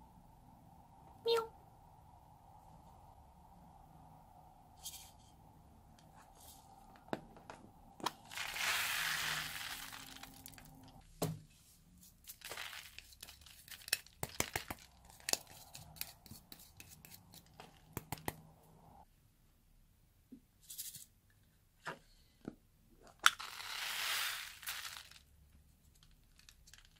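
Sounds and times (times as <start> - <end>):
foam beads pouring out: 8.1 - 11.0, 12.3 - 15.0, 23.4 - 25.3.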